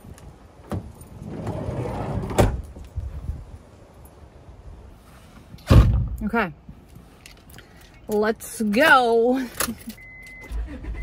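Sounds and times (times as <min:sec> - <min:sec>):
sliding door slamming shut: 0:00.7 - 0:02.6
sliding door rolling on track: 0:01.2 - 0:02.5
car door thud: 0:05.7 - 0:06.2.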